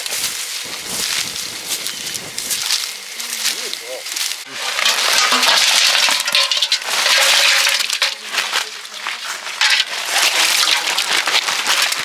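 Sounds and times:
fish slapping against metal: 4.4 - 12.0.

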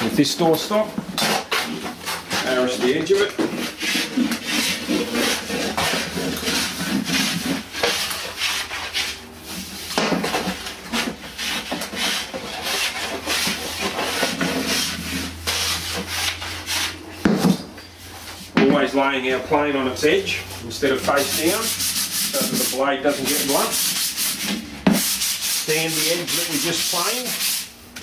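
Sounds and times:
hand plane shaving wood: 1.2 - 9.2, 10.3 - 17.0, 21.1 - 27.7.

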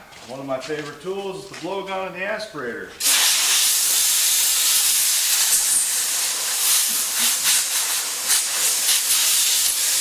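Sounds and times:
compressed air blow gun hissing: 3.0 - 10.0.

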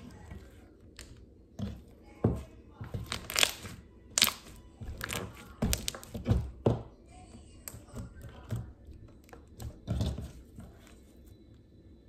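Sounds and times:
slime squishing with wet pops: 3.0 - 6.4.

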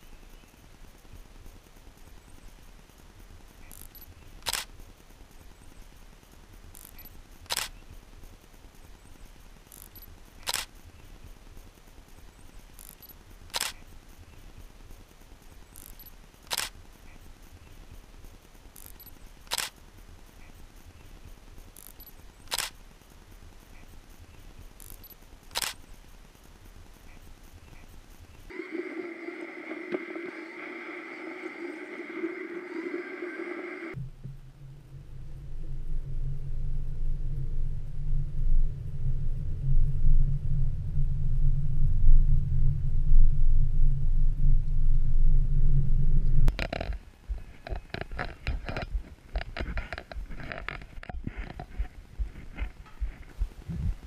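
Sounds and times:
faint low hum: 0.0 - 54.0
camera shutter clicks: 3.8 - 4.7, 6.8 - 7.8, 9.8 - 10.7, 12.9 - 13.8, 15.9 - 16.8, 18.9 - 19.8, 21.9 - 22.8, 24.9 - 25.8.

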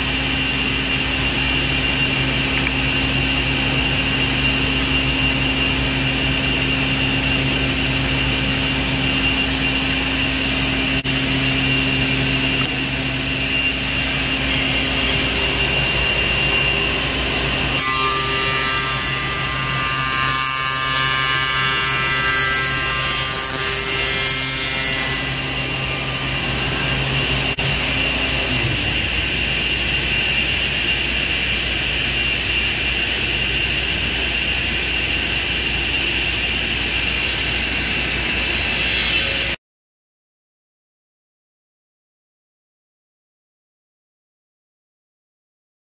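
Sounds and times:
cutter whine cutting wood: 10.6 - 29.7
machine motor hum: 26.2 - 38.4.

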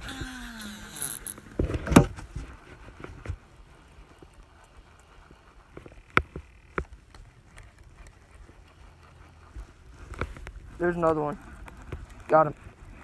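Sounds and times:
fishing reel spool whirring: 0.0 - 1.6, 4.0 - 6.8.

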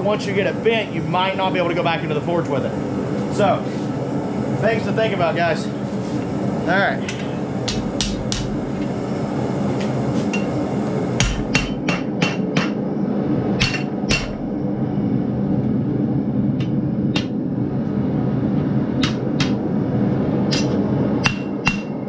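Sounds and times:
low hum: 0.0 - 22.0
hammer striking hot steel on anvil: 7.0 - 8.8, 9.8 - 10.6, 11.2 - 12.8, 13.6 - 14.5, 16.6 - 17.4, 19.0 - 19.6, 20.5 - 22.0.

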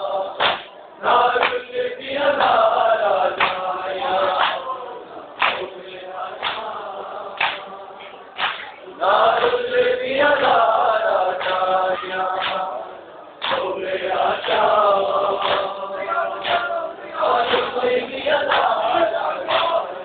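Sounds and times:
men chanting in unison: 0.0 - 20.0
chest-beating slaps: 0.4 - 0.8, 3.4 - 3.7, 4.3 - 4.6, 5.4 - 5.7, 6.4 - 6.7, 7.4 - 7.7, 8.4 - 8.8, 9.4 - 9.6, 11.4 - 11.7, 12.3 - 12.7, 13.4 - 13.7, 15.4 - 15.8, 16.4 - 16.7, 19.5 - 19.8.

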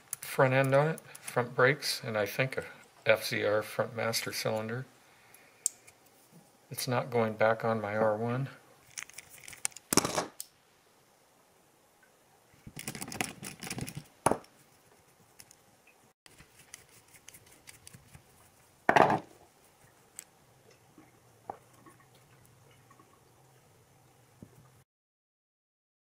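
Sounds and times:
small metal parts clicking: 8.8 - 10.2.

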